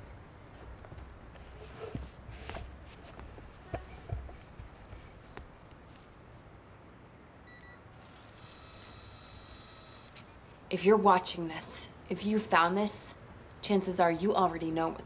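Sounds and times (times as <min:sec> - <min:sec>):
faint room noise: 0:00.0 - 0:15.0
short electronic beep: 0:07.5 - 0:07.8.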